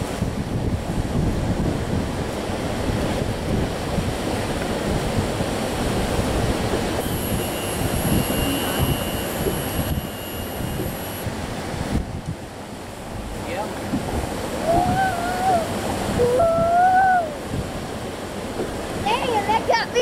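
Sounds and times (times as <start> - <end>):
water lapping against boat hull: 0.0 - 16.4, 17.4 - 20.0
wind buffeting microphone: 0.0 - 20.0
thin high whine: 7.0 - 11.3.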